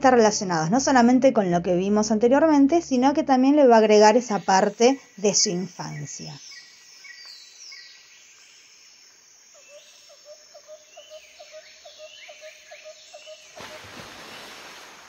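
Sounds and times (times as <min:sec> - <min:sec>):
birds chirping: 0:03.8 - 0:14.9.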